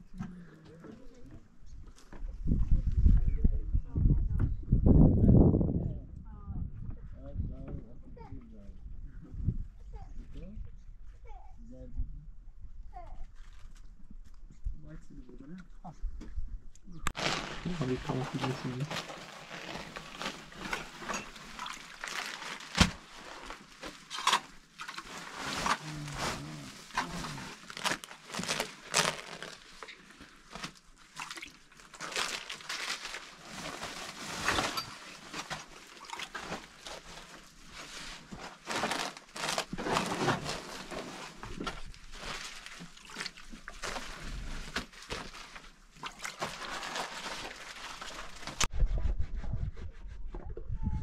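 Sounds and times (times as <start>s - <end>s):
flatbread and plastic crackling: 17.1s - 48.7s
low rumble: 48.7s - 51.0s.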